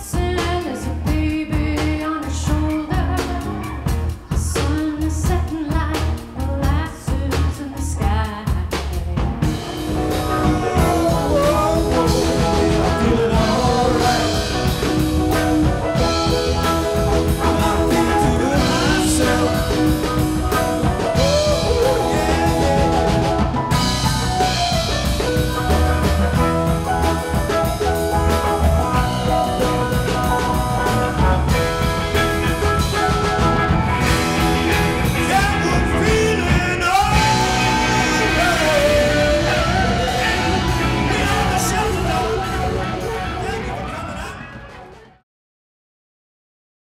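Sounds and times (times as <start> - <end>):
rock band playing: 0.0 - 45.2
person singing: 9.4 - 25.0, 34.0 - 44.6
drum hits: 9.4 - 42.8.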